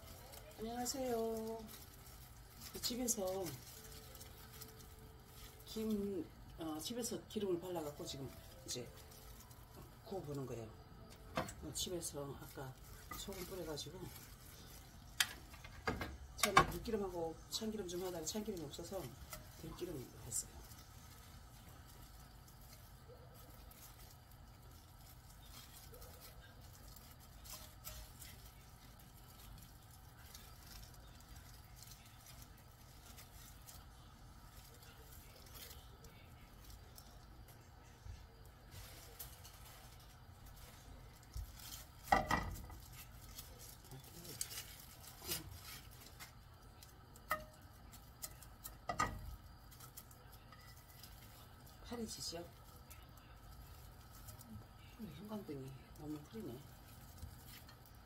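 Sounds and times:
dry seaweed sheets rustling: 0.0 - 58.0
low steady hum: 0.0 - 58.0
chopsticks tapping a frying pan: 47.2 - 49.3.

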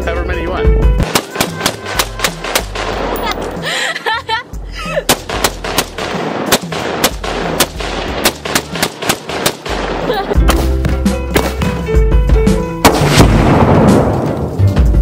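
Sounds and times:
music: 0.0 - 15.0
rifle shots: 1.0 - 3.5, 5.1 - 10.6, 12.8 - 14.3.

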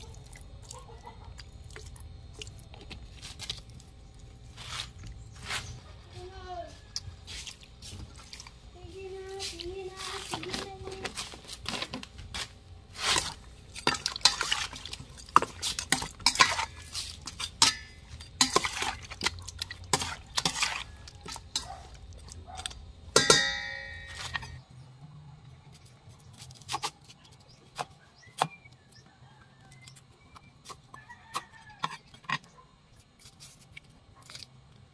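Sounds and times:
metal spoon scraping steel bowl: 15.4 - 21.7
metal clank: 23.2 - 24.6.

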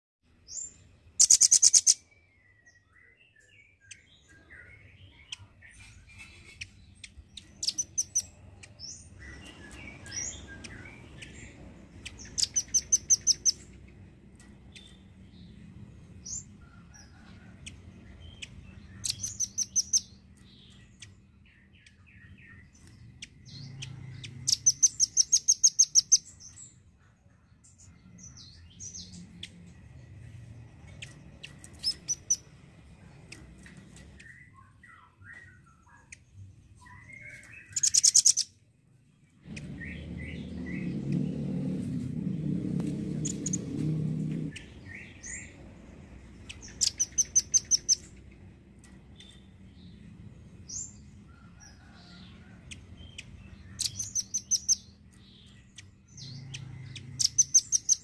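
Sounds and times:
short bird chirps: 0.6 - 8.2.

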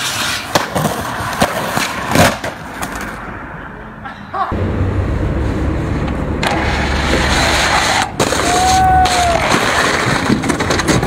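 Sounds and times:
road noise: 0.0 - 11.0
heavy vehicle engine rumble: 4.5 - 9.4.

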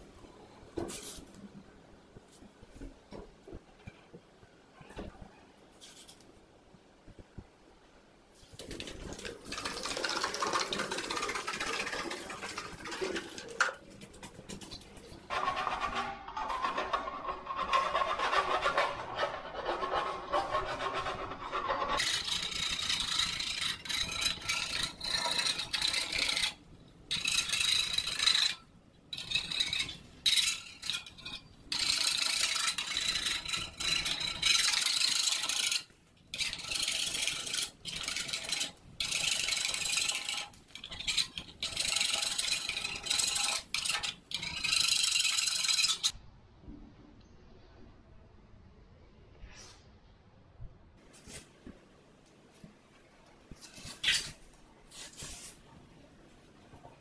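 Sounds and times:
trowel scraping wallpaper: 8.7 - 46.1, 53.6 - 55.6.

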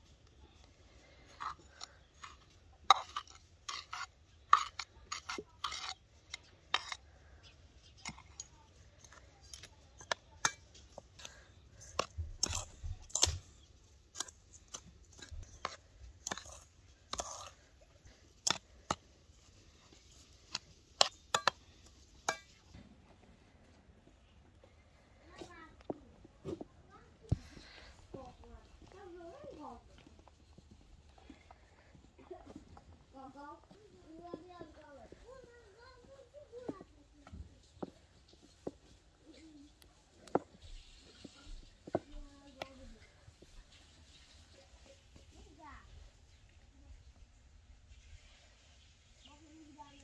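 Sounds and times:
spoon scraping enamel bowl: 1.3 - 7.1, 8.0 - 13.5, 14.2 - 22.6.

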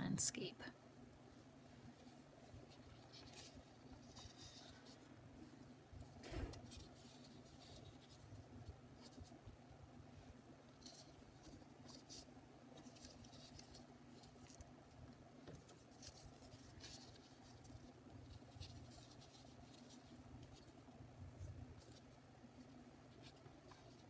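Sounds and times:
low steady hum: 0.0 - 24.0
paper rustling and scraping: 6.0 - 8.3.

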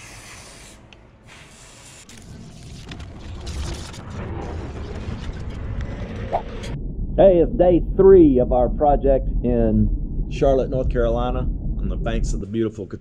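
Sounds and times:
foam gun hissing: 0.0 - 2.1
low rumble: 3.0 - 13.0.

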